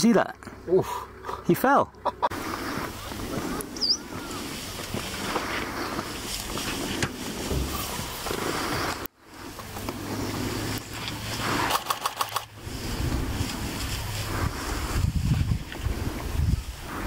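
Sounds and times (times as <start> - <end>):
wind buffeting microphone: 2.3 - 17.0
vehicle engine idling: 9.3 - 15.0
sharp clicks: 11.0 - 12.5.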